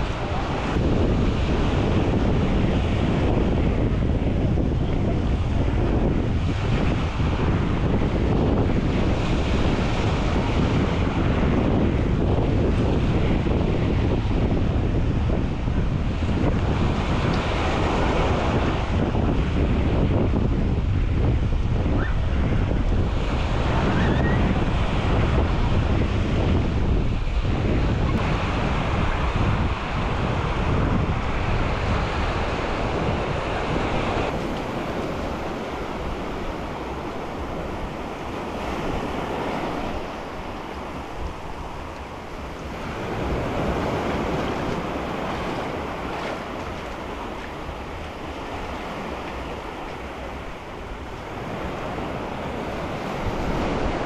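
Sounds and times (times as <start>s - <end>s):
waves washing on sandy shore: 0.0s - 54.0s
wind buffeting microphone: 0.0s - 54.0s.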